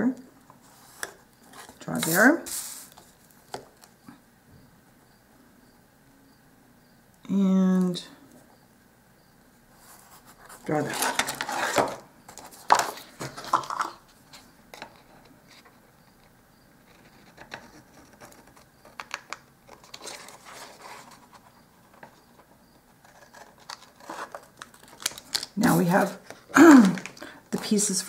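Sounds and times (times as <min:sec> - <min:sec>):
paper and tool handling: 0:00.6 - 0:04.0, 0:09.8 - 0:15.7, 0:16.9 - 0:28.0.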